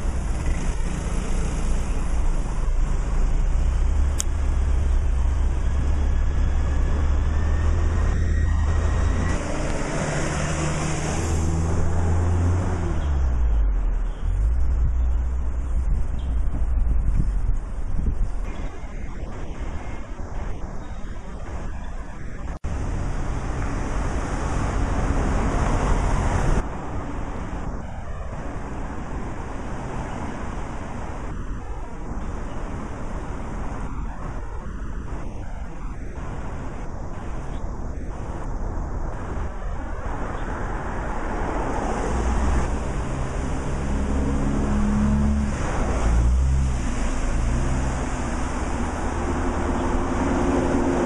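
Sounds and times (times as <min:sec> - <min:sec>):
car passing close: 0:00.0 - 0:15.6, 0:39.2 - 0:51.0
road traffic: 0:00.0 - 0:51.0
wind: 0:00.0 - 0:51.0.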